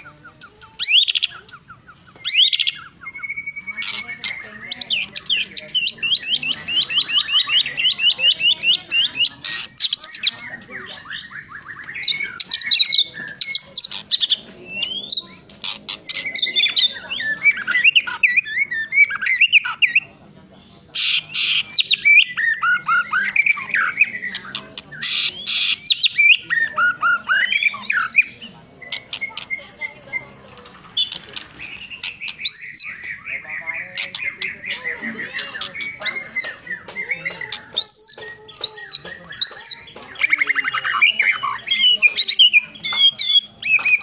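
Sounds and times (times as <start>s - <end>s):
bird singing: 0.0s - 20.3s, 20.9s - 44.0s
bird sharp clicking notes: 35.3s - 44.0s.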